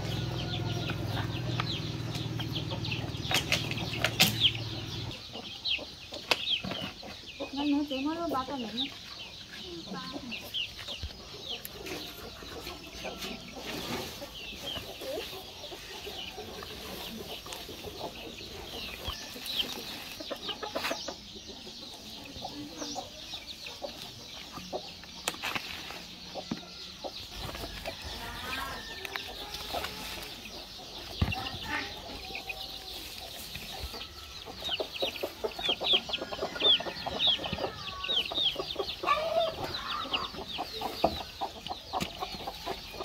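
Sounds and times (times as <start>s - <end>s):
chickens clucking: 0.0s - 43.0s
chicks peeping: 0.0s - 43.0s
rustling of fern bundles: 13.2s - 17.9s, 27.4s - 30.7s.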